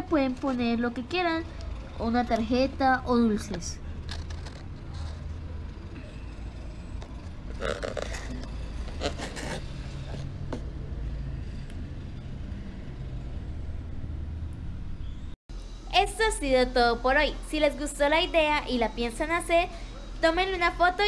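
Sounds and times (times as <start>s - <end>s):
cardboard frame scraping on tiles: 4.1s - 5.4s, 7.6s - 10.3s.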